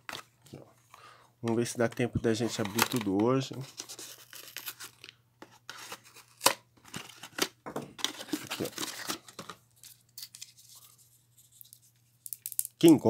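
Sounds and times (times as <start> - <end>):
cardboard tearing and rustling: 2.5 - 5.1, 5.7 - 9.4.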